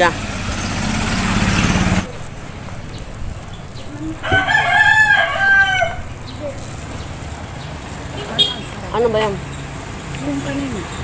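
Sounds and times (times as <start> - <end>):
street traffic hum: 0.0 - 11.0
rooster crowing: 4.2 - 6.2.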